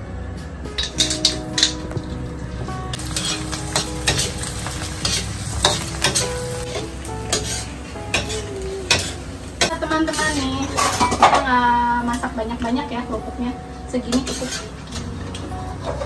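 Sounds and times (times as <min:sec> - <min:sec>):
crackers sizzling in hot oil: 0:00.8 - 0:12.4, 0:13.9 - 0:16.0
chopsticks tapping a wok: 0:00.8 - 0:12.7.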